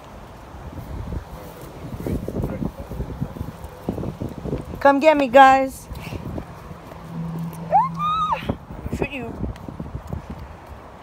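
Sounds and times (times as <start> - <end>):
child's high-pitched squeal: 7.7 - 8.6.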